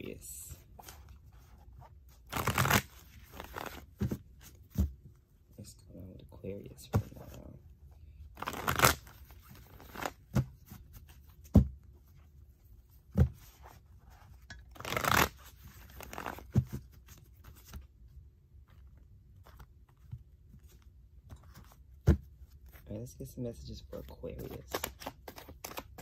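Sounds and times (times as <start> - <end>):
cards shuffling: 2.3 - 4.6, 8.4 - 11.5, 14.7 - 17.9, 24.0 - 26.0.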